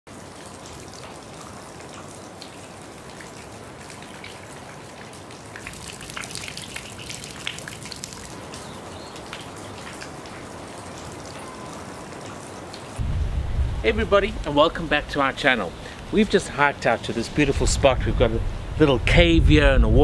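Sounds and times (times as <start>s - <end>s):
water trickling: 0.1s - 17.3s
drops splashing into pool: 5.3s - 10.4s.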